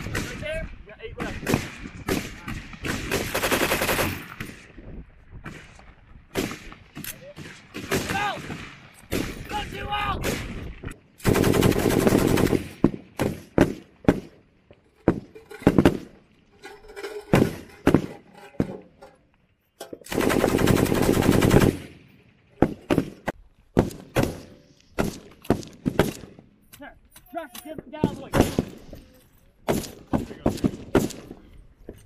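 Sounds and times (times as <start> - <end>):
machine gun firing bursts: 1.4 - 4.6, 11.2 - 14.3, 20.1 - 22.0
single gunshots: 22.6 - 26.4, 28.1 - 28.8, 29.7 - 31.3.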